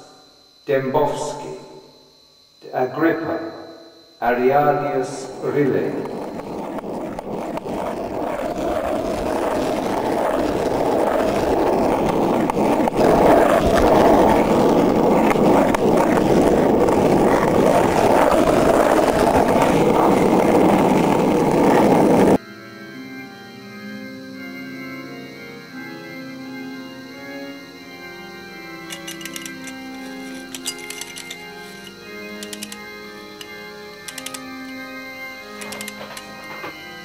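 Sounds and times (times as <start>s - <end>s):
rough crackling rumble: 5.3s - 22.4s.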